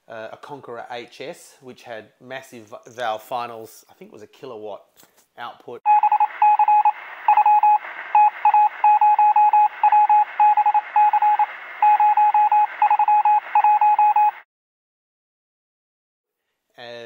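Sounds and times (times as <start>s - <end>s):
morse code tone: 5.9s - 14.4s
radio hiss: 6.1s - 13.6s.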